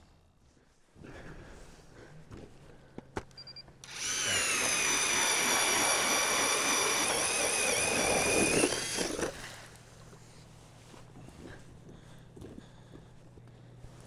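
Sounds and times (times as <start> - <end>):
small motor whining: 3.8 - 9.8.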